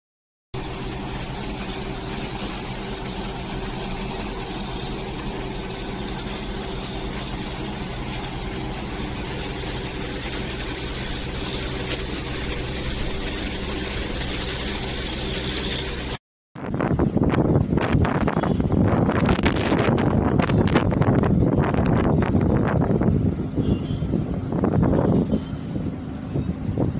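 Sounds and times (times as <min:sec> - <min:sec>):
heavy rain falling: 0:00.6 - 0:16.2
low mechanical hum: 0:00.6 - 0:26.9.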